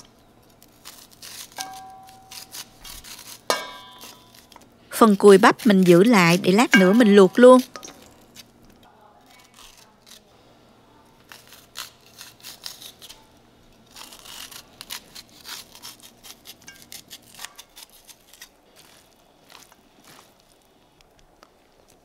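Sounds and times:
knife scraping corn kernels: 0.0s - 8.6s, 9.3s - 10.3s, 11.3s - 13.2s, 13.9s - 19.1s.

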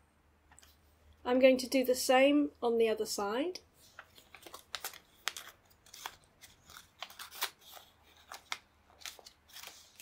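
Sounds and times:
paper crinkling: 3.8s - 10.0s.

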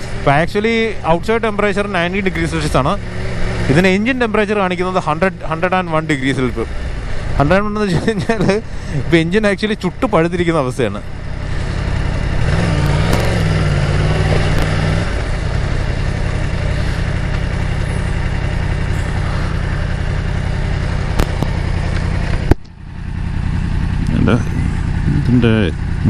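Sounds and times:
motorcycle engine idling: 0.0s - 26.0s
sharp click: 13.0s - 13.4s, 21.1s - 22.8s.

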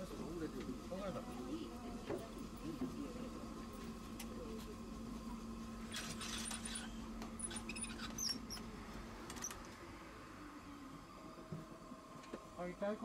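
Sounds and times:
short high-pitched squeaks: 5.9s - 8.6s.

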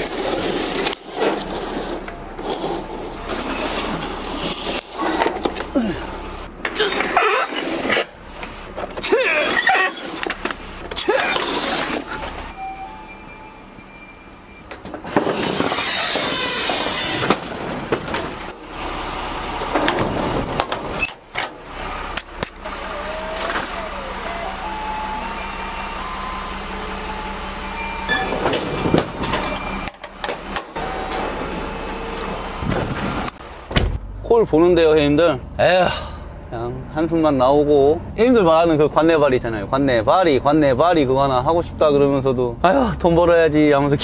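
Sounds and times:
falling whine: 0.0s - 33.8s
heavy vehicle running: 0.0s - 44.0s
knocks and clatter: 14.6s - 18.7s, 19.6s - 21.6s, 28.1s - 31.2s.

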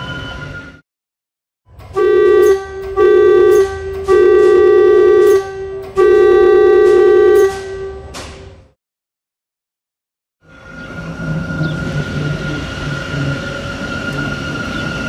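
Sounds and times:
train air horn blasts: 1.9s - 8.2s
soft tone: 2.0s - 8.1s.

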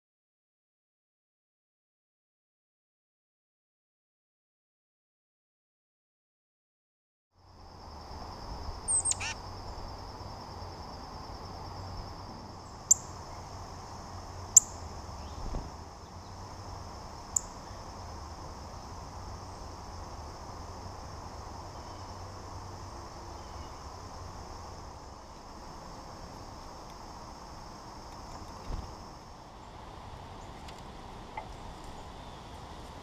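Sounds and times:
descending bird call: 8.9s - 9.4s.

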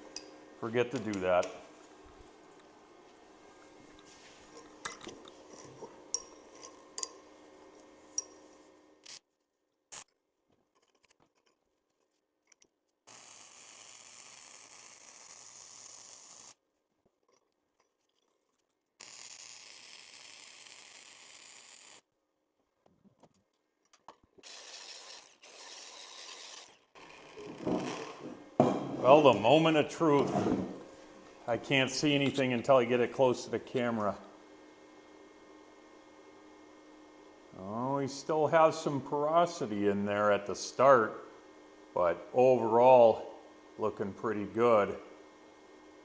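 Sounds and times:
welding arc hissing: 24.4s - 28.3s.

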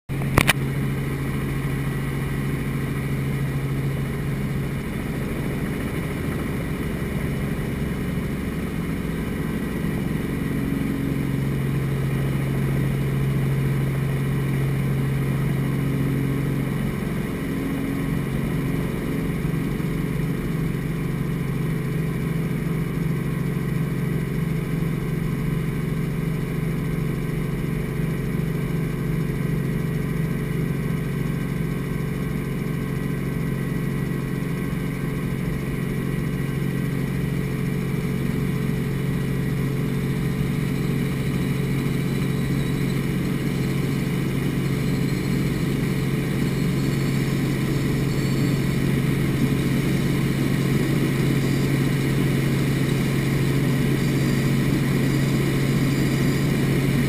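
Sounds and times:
helicopter engine and rotor: 0.1s - 57.0s
short sharp click: 0.2s - 0.6s.

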